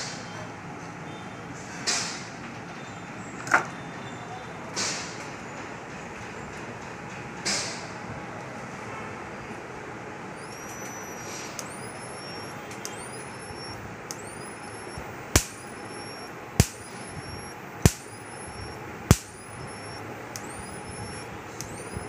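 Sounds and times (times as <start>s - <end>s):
electric fence pulse clicks: 10.4s - 22.0s
high-pitched transformer whine: 10.4s - 22.0s
loud sharp electric cracks: 15.3s - 22.0s.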